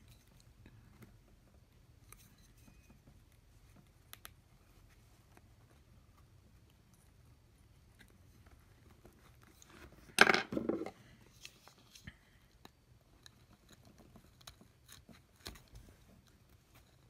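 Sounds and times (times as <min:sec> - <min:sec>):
small clicks and taps: 0:03.0 - 0:04.4.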